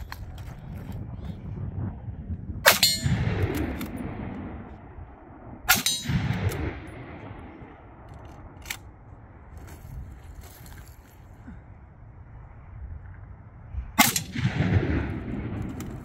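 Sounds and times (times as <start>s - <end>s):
rifle shot: 2.6s - 4.7s, 5.7s - 7.6s, 14.0s - 16.0s.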